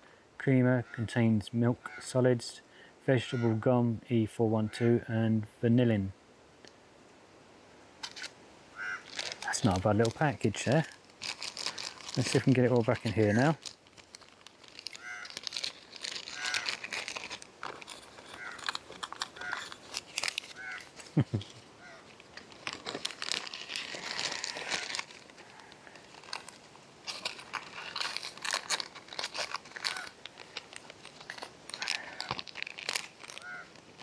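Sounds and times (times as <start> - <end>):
plastic and foil sachets crinkling: 8.0 - 34.0.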